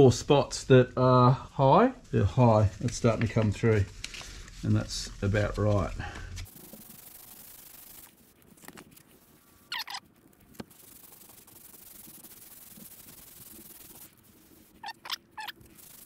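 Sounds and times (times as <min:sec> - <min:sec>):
sandpaper rasping: 0:06.4 - 0:08.3, 0:09.2 - 0:16.0.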